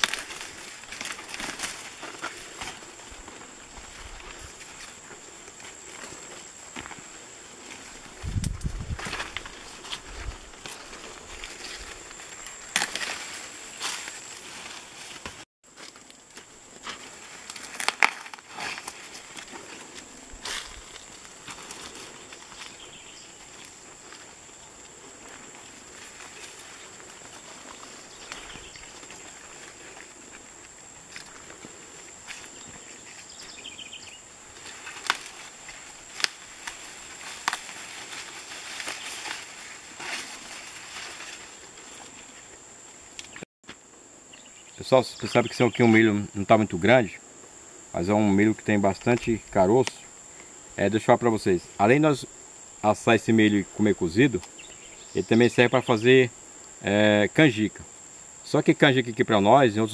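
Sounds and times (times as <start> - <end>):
corn ears snapping off stalks: 0.0 - 2.8, 10.6 - 19.6, 34.6 - 41.4, 49.0 - 50.1
footsteps: 0.0 - 42.6
corn leaves rustling and crackling: 0.0 - 43.5, 48.0 - 52.1.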